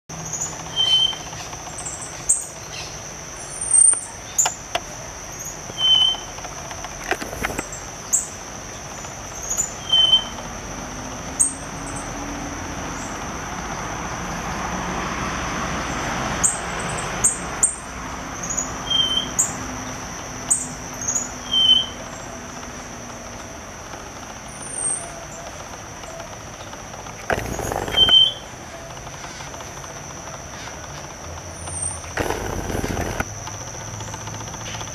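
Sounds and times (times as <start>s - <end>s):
high insect drone: 25.6s - 34.8s.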